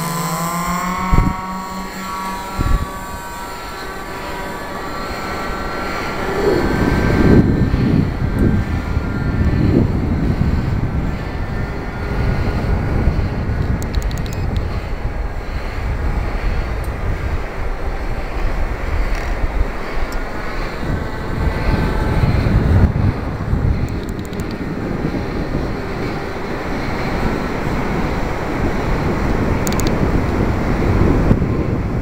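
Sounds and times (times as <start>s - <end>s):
model plane engines whining: 0.0s - 32.0s
wind rumble on microphone: 0.0s - 32.0s.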